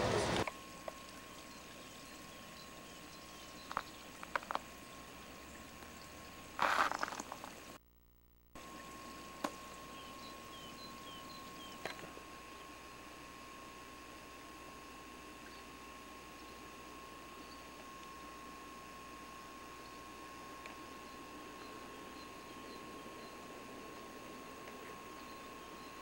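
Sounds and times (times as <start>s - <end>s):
steady hiss: 0.0s - 7.8s
faint high hum: 0.0s - 26.0s.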